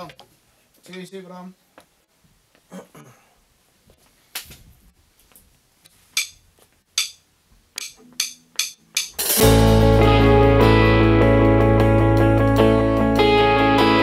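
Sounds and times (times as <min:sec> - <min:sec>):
drumstick count-in clicks: 0:06.2 - 0:06.4, 0:07.0 - 0:07.2, 0:07.8 - 0:09.2
rock band playing: 0:09.2 - 0:14.0.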